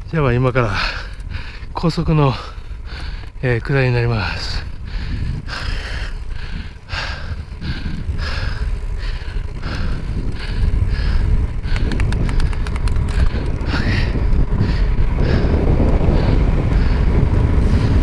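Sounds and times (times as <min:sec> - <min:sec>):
wind buffeting microphone: 0:00.0 - 0:18.0
person breathing hard: 0:00.7 - 0:03.4, 0:04.2 - 0:18.0
quick ticks: 0:08.0 - 0:14.4.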